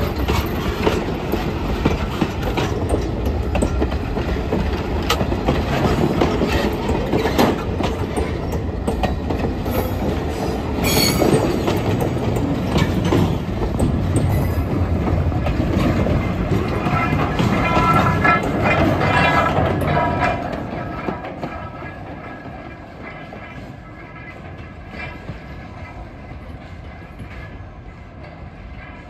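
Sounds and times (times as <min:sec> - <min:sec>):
train wheels rumbling on rails: 0:00.0 - 0:29.0
wheels clacking over rail joints: 0:00.0 - 0:29.0
wheel squeal: 0:10.8 - 0:11.4.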